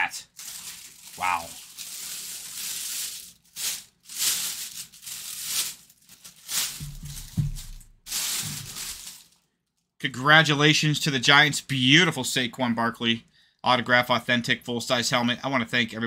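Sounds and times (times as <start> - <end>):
plastic bag rustling: 0.0 - 9.5.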